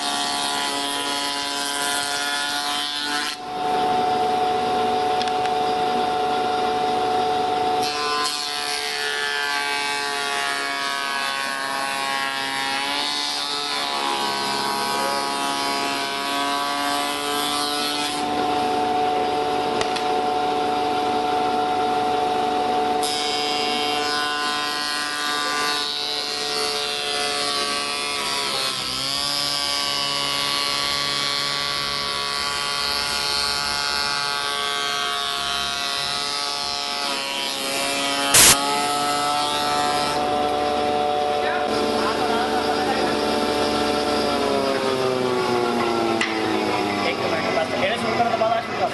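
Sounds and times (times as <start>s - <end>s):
wood shaper machine whine: 0.0s - 48.9s
hiss of cutting wood: 38.2s - 38.8s.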